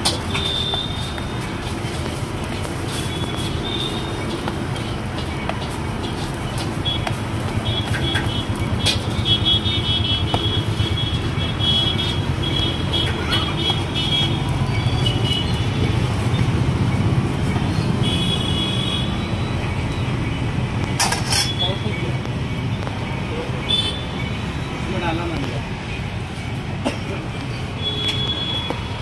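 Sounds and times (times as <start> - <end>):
street traffic rumble: 0.0 - 29.0
metal spatula scraping on griddle: 21.0 - 21.6.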